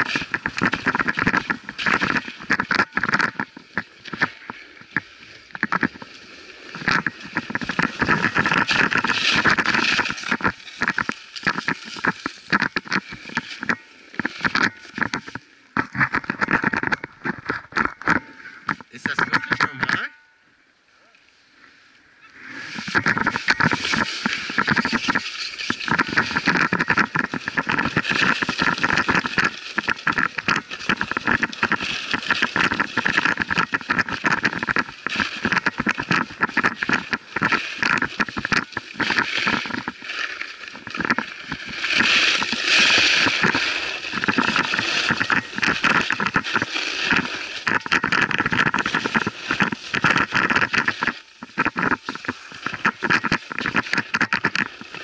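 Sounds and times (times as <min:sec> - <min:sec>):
skis scraping over snow: 0:04.6 - 0:14.5, 0:22.4 - 0:55.0.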